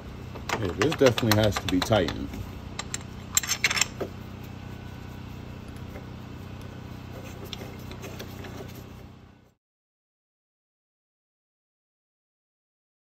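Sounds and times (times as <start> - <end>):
steady low hum: 0.0 - 9.6
ratchet clicks: 0.5 - 2.2.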